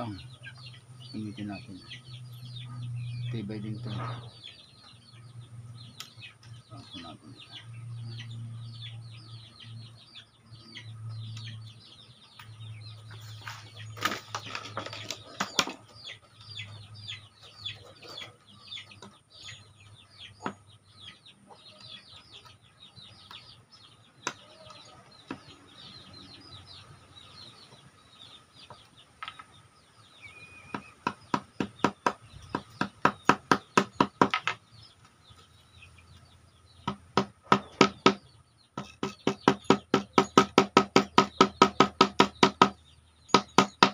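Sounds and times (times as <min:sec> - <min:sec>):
chicks peeping: 0:00.0 - 0:43.9
hammer tapping on wood: 0:30.7 - 0:34.6, 0:36.8 - 0:38.2, 0:38.8 - 0:43.9.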